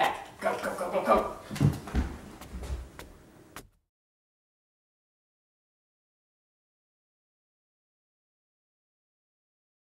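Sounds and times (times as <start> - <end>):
faint room noise: 0.0 - 3.8.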